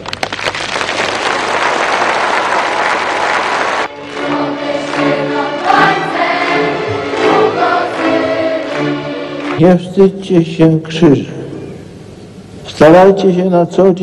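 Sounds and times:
crowd applauding: 0.0 - 10.1
choir singing: 3.6 - 9.7.

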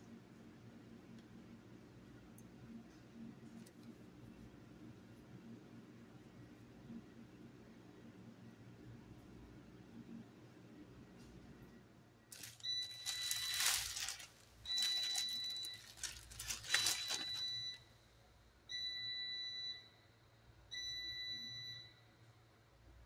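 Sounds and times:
loud rustling: 12.3 - 17.6
electronic alarm beeping: 12.4 - 17.8.

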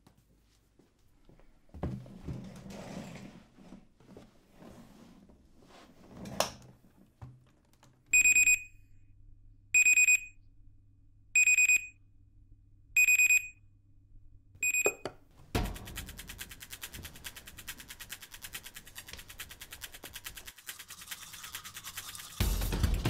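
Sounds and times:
alarm clock beeping: 8.2 - 8.7, 9.8 - 10.3, 11.4 - 11.9, 13.0 - 13.6, 14.6 - 15.1
music: 22.4 - 23.0.

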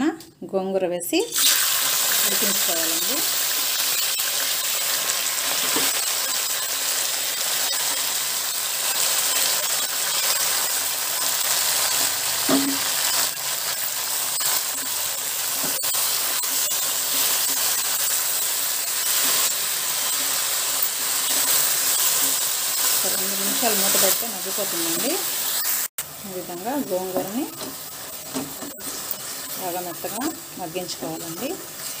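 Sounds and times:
leaves sizzling in hot oil: 1.3 - 32.0
wooden spatula stirring leaves: 26.3 - 32.0.

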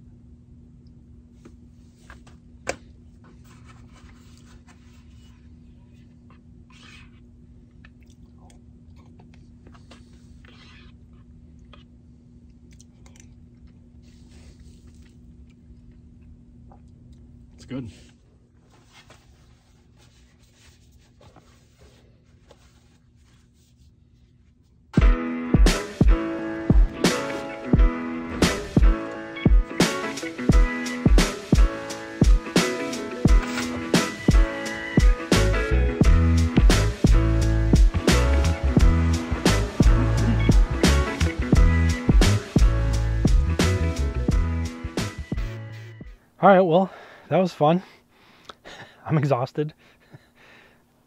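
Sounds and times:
steady low hum: 0.0 - 51.0
person chewing: 7.7 - 17.3
sustained chords: 37.1 - 44.7.

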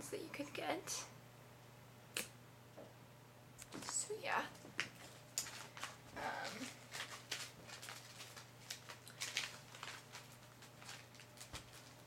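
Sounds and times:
packages rustling: 4.6 - 12.0.

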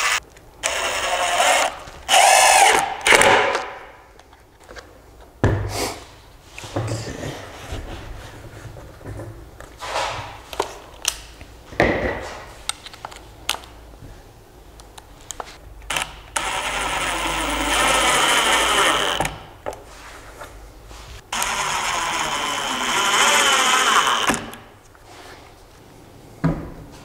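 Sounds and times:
cordless drill whining: 0.0 - 2.8, 15.9 - 19.4, 21.3 - 24.6.

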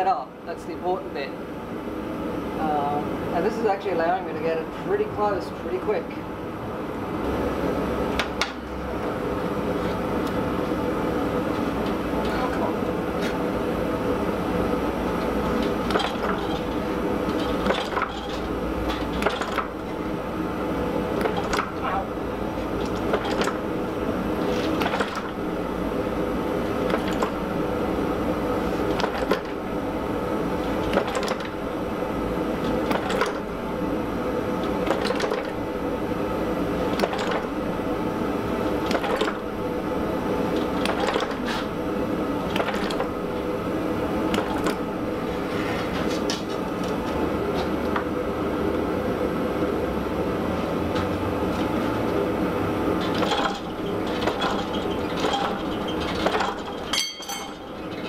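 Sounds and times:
hammer striking hot steel: 56.9 - 57.7.

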